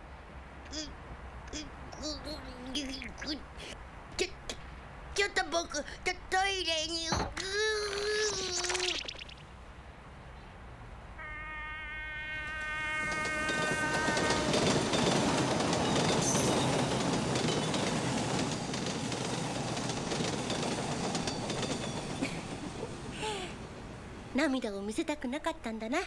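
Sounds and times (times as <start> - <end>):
held horn-like tone: 11.2 - 14.7.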